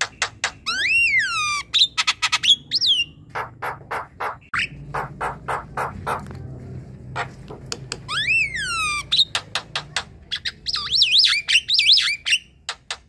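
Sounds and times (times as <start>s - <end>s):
bird clicks and chatter: 0.0s - 2.6s, 7.2s - 13.0s.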